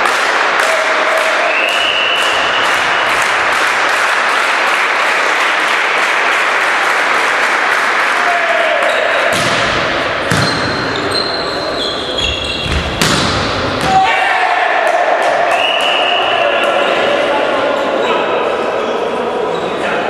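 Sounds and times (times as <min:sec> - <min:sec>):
hall noise with voices: 0:00.0 - 0:20.0
volleyball struck: 0:09.2 - 0:11.1, 0:12.6 - 0:14.1
volleyball spike landing: 0:09.3 - 0:10.8, 0:12.7 - 0:14.0
sneakers squeaking on court: 0:10.2 - 0:14.0.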